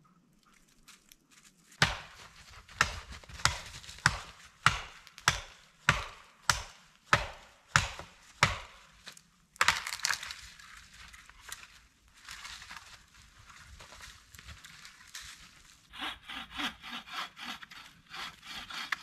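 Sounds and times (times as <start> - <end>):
axe chopping wood: 1.8 - 10.3, 16.0 - 19.0.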